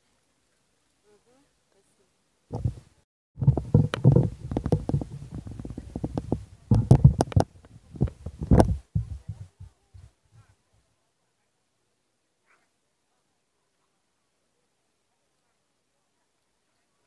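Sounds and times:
wind buffeting microphone: 2.5 - 10.5.

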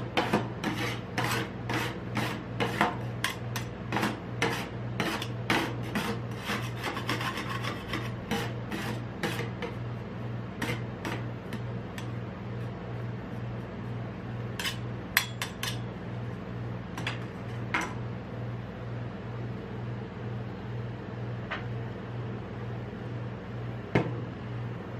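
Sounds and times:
steady low hum: 0.0 - 24.9
metal spatulas scraping cold plate: 0.2 - 9.8, 10.6 - 12.2, 14.6 - 15.9.

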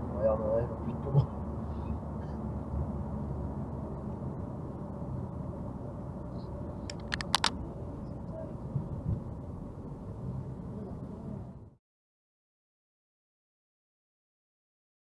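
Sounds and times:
road and engine noise in car: 0.0 - 11.8
sharp clicks: 6.9 - 7.6.

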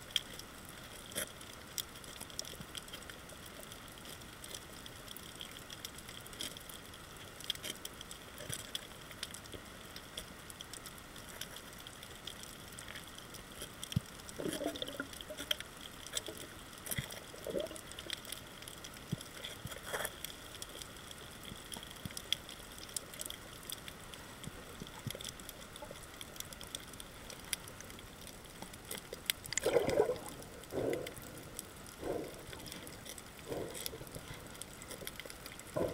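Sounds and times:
underwater crackle of clicks: 0.0 - 35.9
bubbling gurgling bursts: 14.4 - 15.1, 29.6 - 32.7.

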